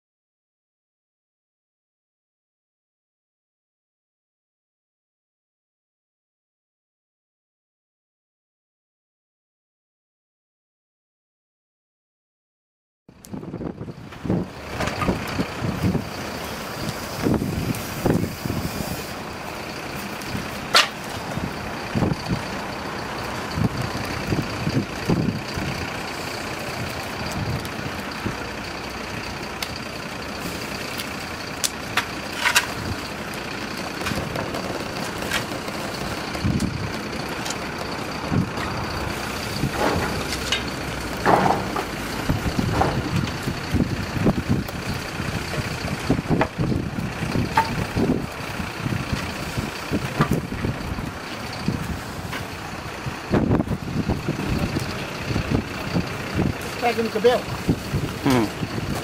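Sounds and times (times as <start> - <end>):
fire crackles and pops: 13.2 - 59.0
wood fire rushing: 13.2 - 59.0.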